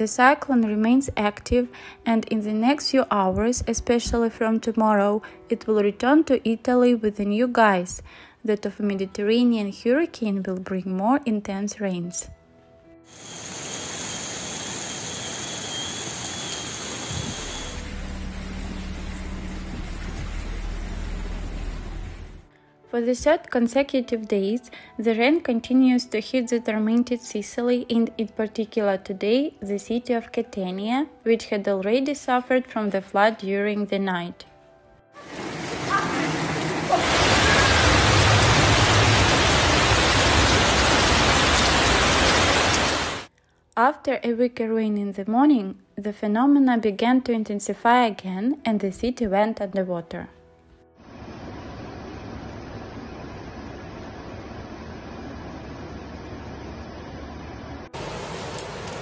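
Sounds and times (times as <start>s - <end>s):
rain: 13.1s - 22.5s, 35.2s - 43.3s, 51.1s - 59.0s
low rumble with steady hum: 17.4s - 22.5s
floodwater rushing: 35.2s - 43.3s, 58.0s - 59.0s.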